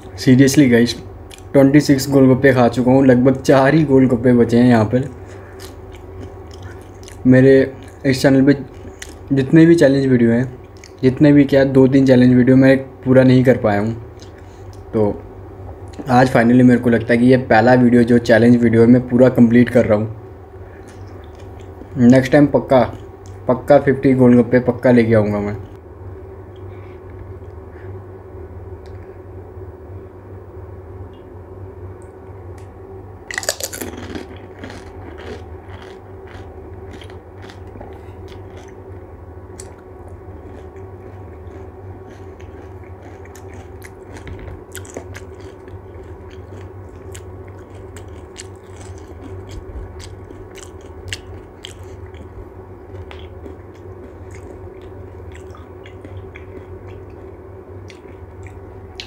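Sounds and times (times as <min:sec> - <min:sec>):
steady low hum: 0:00.0 - 0:59.0
crunching crisp shells: 0:33.3 - 0:38.8, 0:39.6 - 0:57.3.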